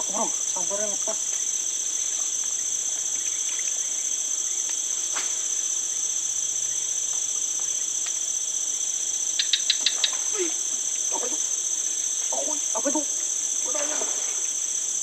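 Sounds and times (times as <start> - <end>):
shrill insect chorus: 0.0 - 15.0
sharp clicks: 9.3 - 10.2.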